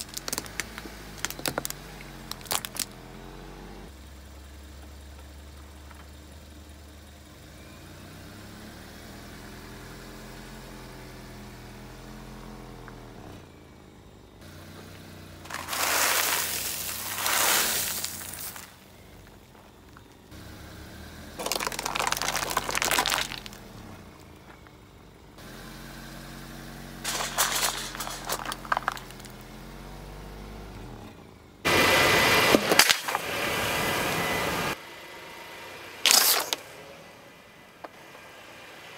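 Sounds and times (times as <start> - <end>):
tyres crushing plastic objects: 0.0 - 3.0, 15.4 - 18.8, 21.4 - 23.8, 27.1 - 29.4, 32.5 - 33.3, 36.1 - 36.6
car engine running low: 0.0 - 38.9.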